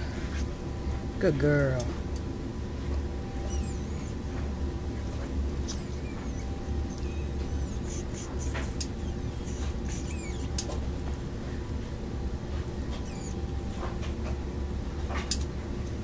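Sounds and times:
low background hum: 0.0s - 16.0s
short high squeaks: 3.3s - 4.4s, 5.6s - 10.8s, 12.9s - 13.4s.

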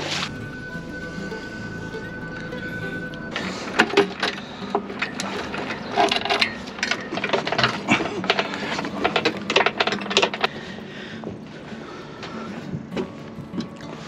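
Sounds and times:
metal rigging hardware clinking: 3.3s - 10.6s.

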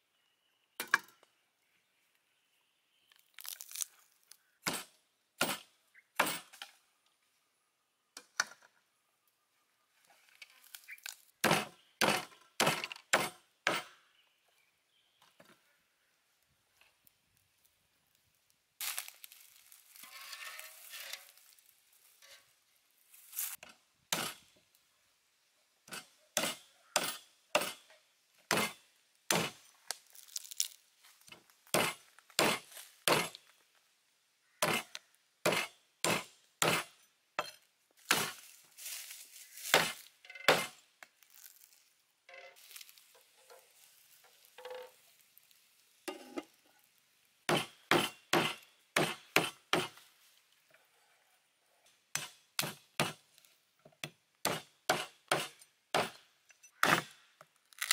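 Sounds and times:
blade chopping ribs on wood: 11.4s - 13.9s, 28.5s - 29.6s, 47.5s - 49.9s, 54.5s - 56.1s.

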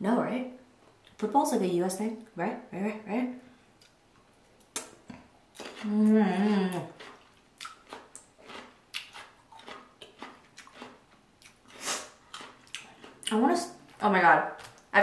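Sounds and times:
person humming: 5.8s - 7.0s.

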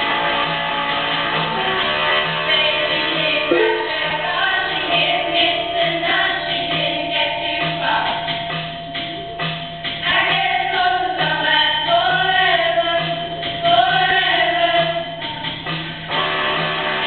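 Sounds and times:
group of voices singing: 3.4s - 6.4s.

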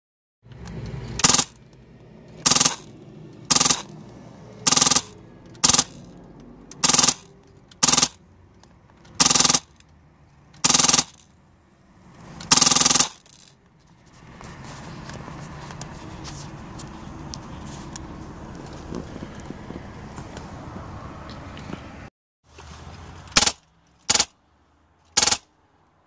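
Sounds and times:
airsoft machine gun bursts: 1.2s - 1.6s, 2.4s - 2.9s, 3.5s - 3.9s, 4.6s - 6.0s, 6.8s - 8.2s, 9.2s - 9.7s, 10.6s - 11.2s, 12.5s - 13.4s, 23.3s - 24.3s, 25.1s - 25.4s.

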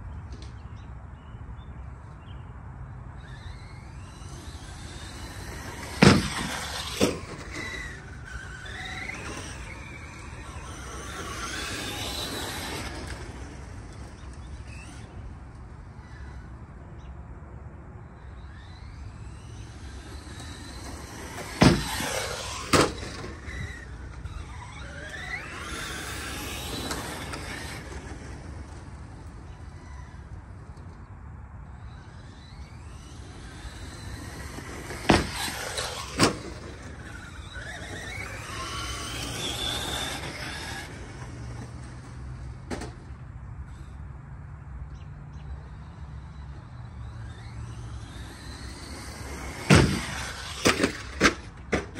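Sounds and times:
rc truck electric motor whining: 2.5s - 51.9s
rc truck knocking on ramp: 33.6s - 36.8s.

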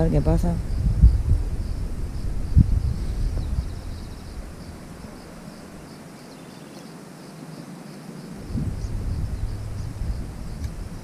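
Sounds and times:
low rumble: 0.0s - 5.2s, 8.4s - 11.0s
insects chirping: 0.0s - 11.0s.

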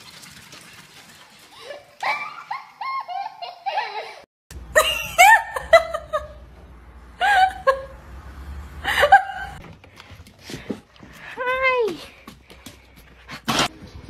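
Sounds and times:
high-pitched laughter: 1.5s - 6.4s.

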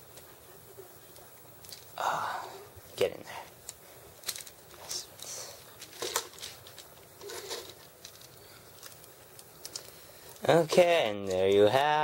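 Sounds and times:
plastic toy parts clicking: 3.6s - 11.8s.

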